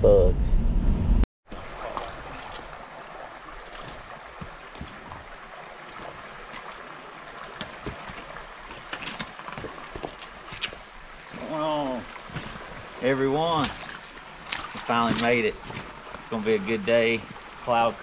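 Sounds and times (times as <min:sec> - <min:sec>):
river water flowing: 0:01.5 - 0:18.0
footsteps on rocks: 0:03.6 - 0:17.8.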